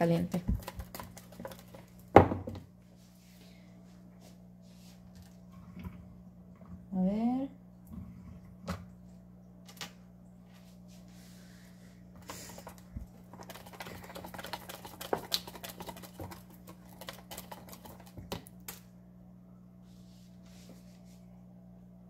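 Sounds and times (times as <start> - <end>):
whisk beating batter in a bowl: 0.0 - 2.1, 12.2 - 18.6
faint steady hum: 0.0 - 22.0.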